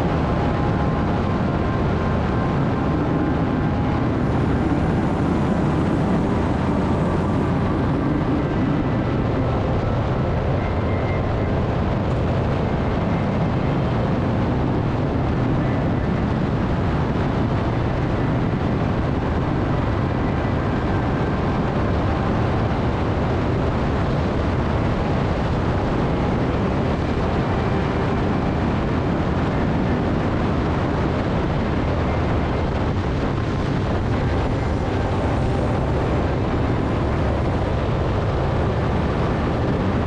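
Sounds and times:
wind and road noise: 0:00.0 - 0:40.0.

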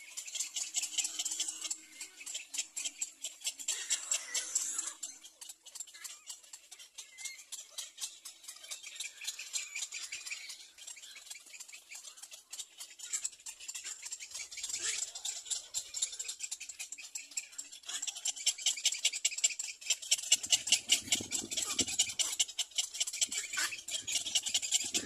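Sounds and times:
high-pitched pulsed animal chirring: 0:00.0 - 0:25.0.

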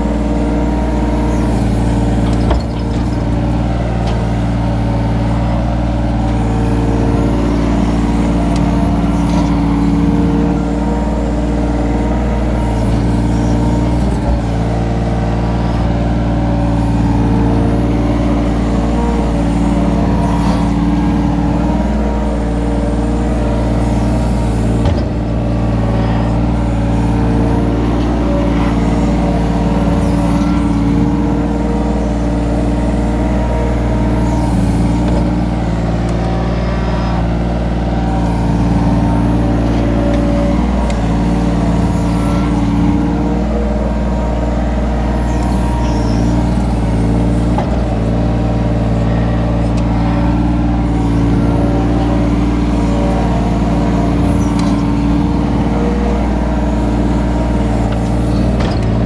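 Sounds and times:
excavator diesel engine running: 0:00.0 - 0:59.0
hydraulics working: 0:00.0 - 0:59.0.

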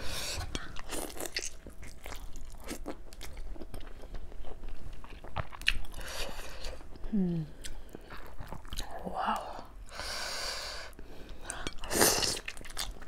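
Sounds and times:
person chewing with mouth smacks: 0:00.5 - 0:08.9.

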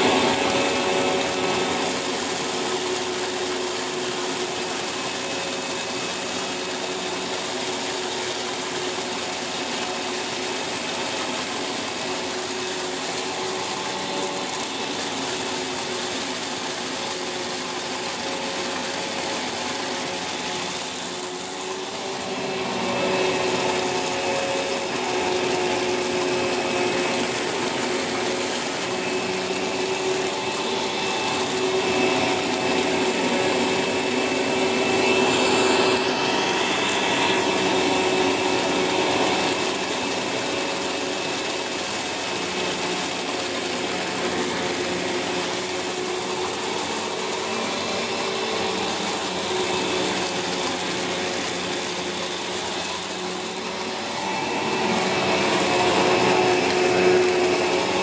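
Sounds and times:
upright vacuum cleaner running: 0:00.0 - 0:58.0.

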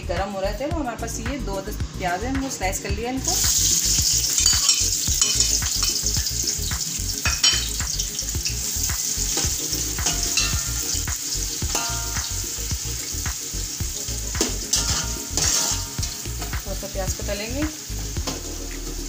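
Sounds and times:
onions sizzling in hot oil: 0:02.6 - 0:19.0
metal spatula scraping pot: 0:03.7 - 0:06.1, 0:14.7 - 0:16.2.

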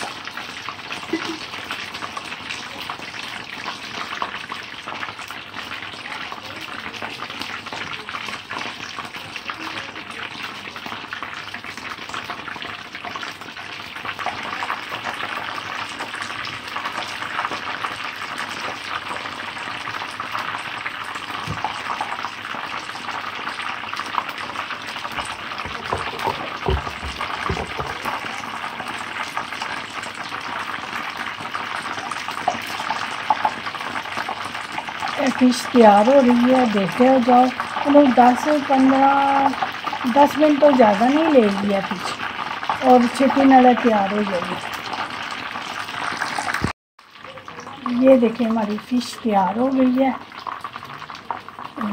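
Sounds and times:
fish deep-frying in oil: 0:00.0 - 0:51.9
dull knocks: 0:25.7 - 0:28.0.

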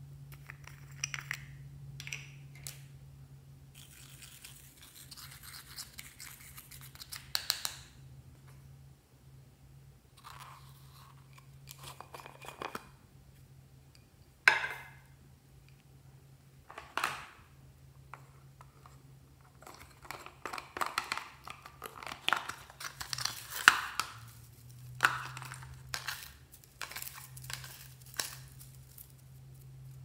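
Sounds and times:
plastic jars rustling and clicking: 0:18.1 - 0:30.0.

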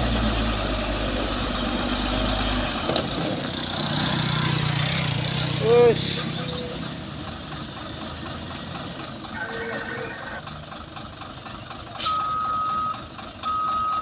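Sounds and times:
diesel engines idling: 0:00.0 - 0:14.0
reversing alarm beeps: 0:12.0 - 0:14.0.

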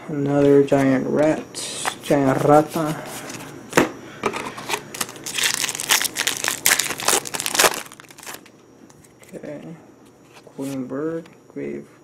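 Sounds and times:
foil wrapper crinkling and tearing: 0:04.7 - 0:08.5.

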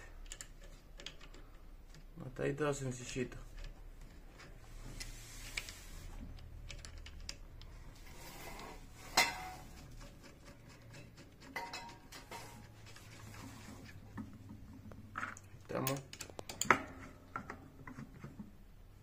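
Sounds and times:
plastic and metal parts clicking: 0:00.0 - 0:02.2, 0:05.5 - 0:07.9, 0:15.2 - 0:18.0.

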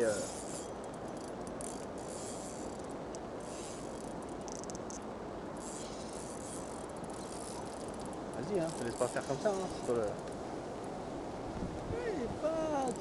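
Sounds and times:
rippling water: 0:00.0 - 0:13.0
wind hiss: 0:00.0 - 0:13.0
fast high ticks: 0:00.2 - 0:05.0, 0:05.6 - 0:10.4.

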